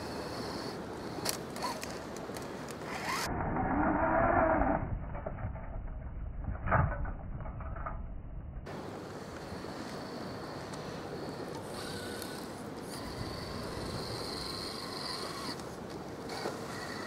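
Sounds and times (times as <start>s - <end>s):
toy car electric motor whining: 0.0s - 2.0s, 2.9s - 3.3s, 9.4s - 17.0s.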